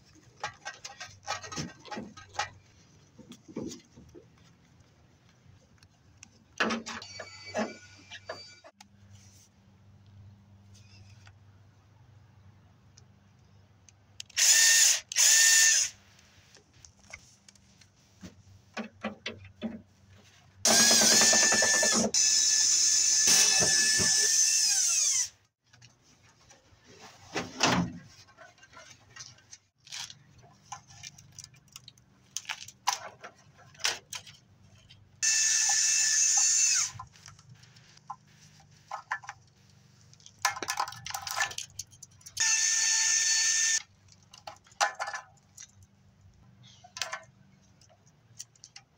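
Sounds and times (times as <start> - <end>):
cordless drill running: 14.4 - 16.0, 20.7 - 25.3, 35.2 - 36.9, 42.4 - 43.8
parts being handled clicking: 38.9 - 42.5, 43.8 - 48.9.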